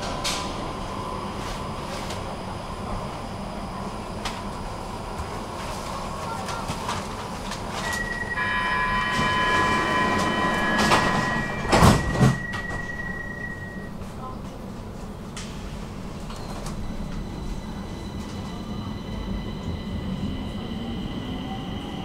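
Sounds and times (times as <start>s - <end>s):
metro train rumble: 0.0s - 22.0s
high multi-tone whine: 7.8s - 13.9s.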